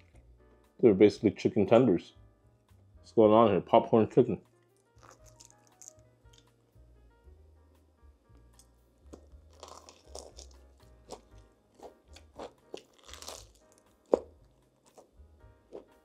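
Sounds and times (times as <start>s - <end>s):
soft background music: 0.0s - 16.0s
crunching and chewing fried chicken: 4.8s - 6.5s, 8.6s - 16.0s.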